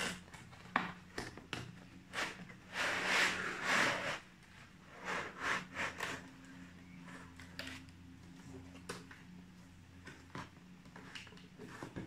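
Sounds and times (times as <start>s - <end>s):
cardboard box rubbing and scraping: 2.2s - 4.3s.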